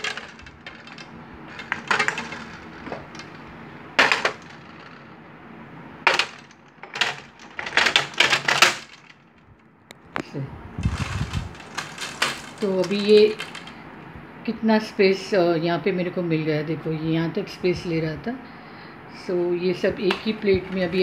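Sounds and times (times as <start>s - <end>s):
knocks and clinks: 0.0s - 5.1s, 10.9s - 13.8s.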